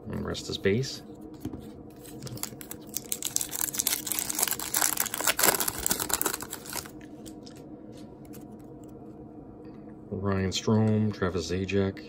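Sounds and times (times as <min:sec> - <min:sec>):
foil wrapper crinkling: 0:02.0 - 0:07.0.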